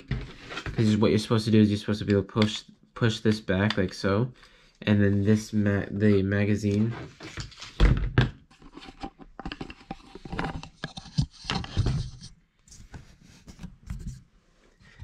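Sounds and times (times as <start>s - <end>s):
plastic knocks clicks and scrapes: 0.0s - 1.0s, 6.7s - 14.2s.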